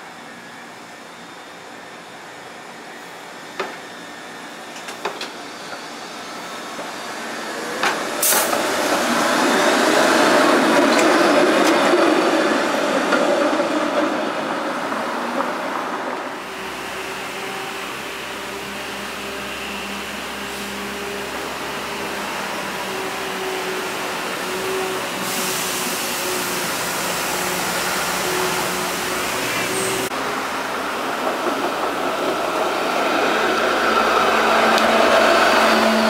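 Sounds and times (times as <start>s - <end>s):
light-rail trolley humming: 0.0s - 36.0s
street traffic noise: 16.0s - 36.0s
bright hiss: 25.0s - 30.1s.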